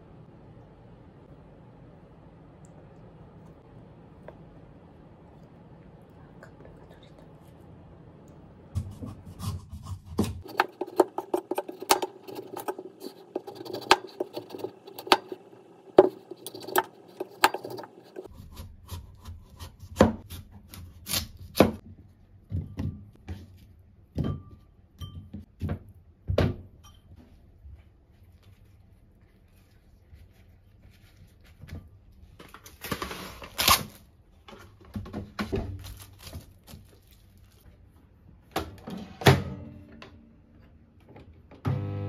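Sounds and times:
knife chopping on wooden board: 8.8 - 15.4.

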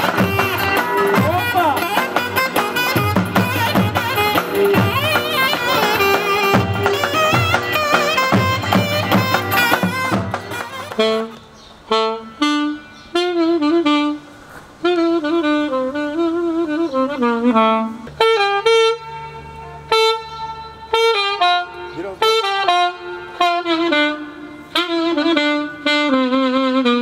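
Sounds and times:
saxophone melody: 0.0 - 27.0.

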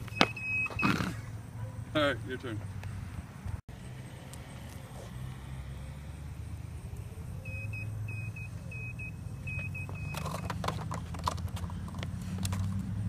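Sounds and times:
hoverboard clattering against curb: 9.9 - 12.7.

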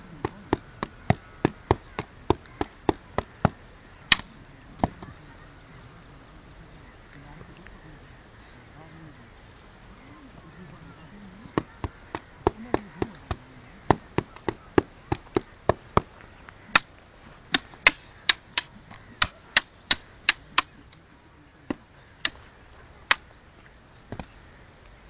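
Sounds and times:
wooden sticks clacking: 0.2 - 5.2, 11.6 - 21.1, 21.7 - 23.3.

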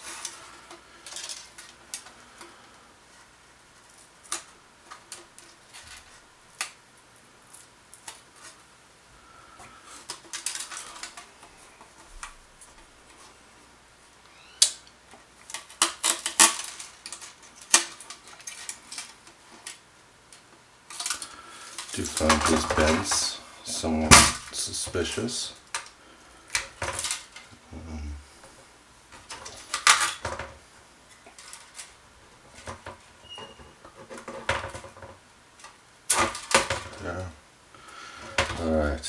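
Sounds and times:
plastic parts clicking: 10.0 - 12.4, 15.4 - 23.3.

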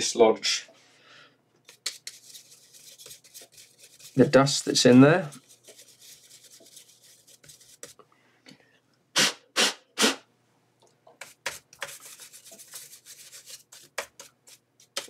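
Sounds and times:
brush bristles scratching: 1.7 - 8.0, 11.2 - 15.0.

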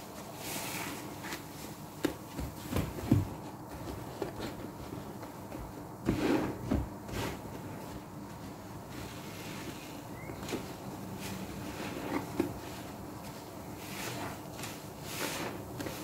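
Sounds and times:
sponges squelching in soapy water: 11.2 - 16.0.

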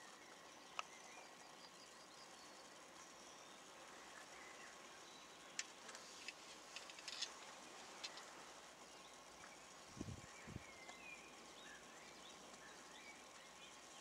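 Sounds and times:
faint high ticks: 0.2 - 1.3, 5.5 - 8.3.

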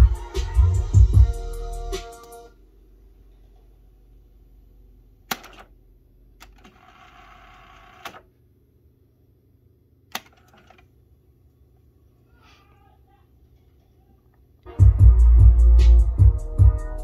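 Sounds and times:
tape winding whirr: 6.4 - 8.3.

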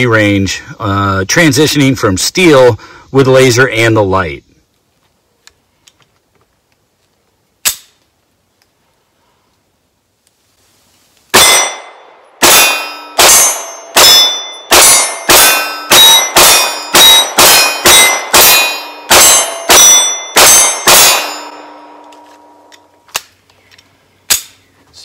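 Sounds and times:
pistol shots: 11.3 - 22.0
steel targets ringing: 11.3 - 22.8.

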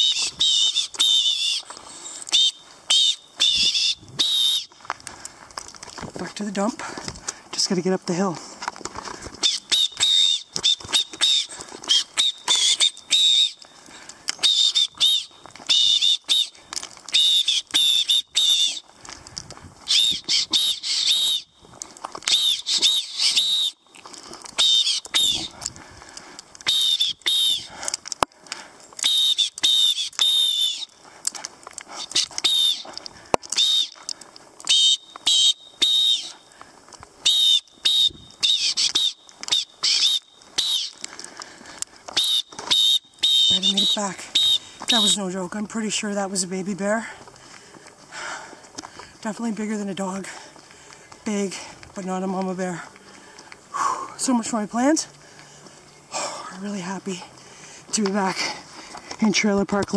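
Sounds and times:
whistle blasts: 0.0 - 1.6, 2.3 - 4.8, 9.4 - 13.6, 14.4 - 18.8, 19.9 - 21.6, 22.3 - 23.8, 24.6 - 25.6, 26.6 - 27.8, 29.0 - 30.9, 32.0 - 32.9, 33.5 - 34.0, 34.6 - 36.4, 37.2 - 41.0, 42.2 - 45.3.

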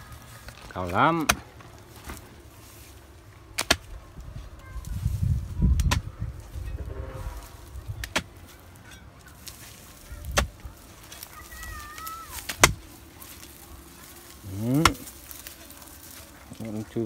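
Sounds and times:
hoe striking stony soil: 1.1 - 2.2, 3.5 - 3.9, 5.7 - 6.1, 7.9 - 13.0, 14.6 - 15.2.

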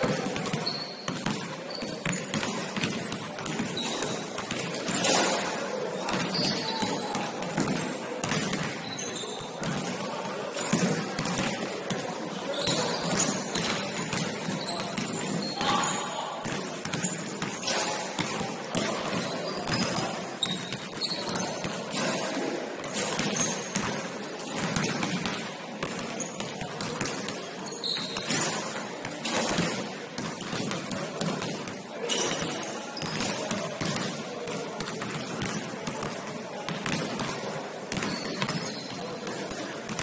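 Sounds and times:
basketball bouncing on gym floor: 0.0 - 40.0.

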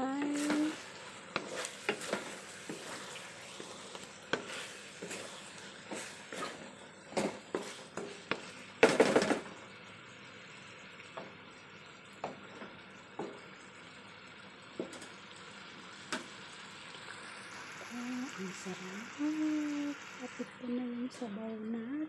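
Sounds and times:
faint sizzle: 0.0 - 22.0
spatula scraping clatter: 0.3 - 8.4.

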